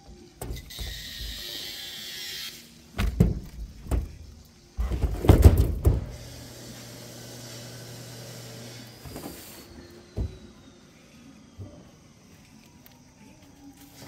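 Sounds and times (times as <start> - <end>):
heavy wooden thuds: 3.0 - 6.2.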